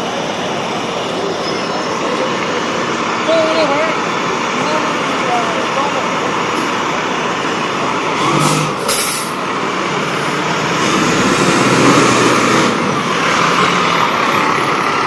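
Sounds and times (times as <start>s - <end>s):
diesel engine driving past: 0.0s - 15.0s
air brake hisses: 8.4s - 9.4s.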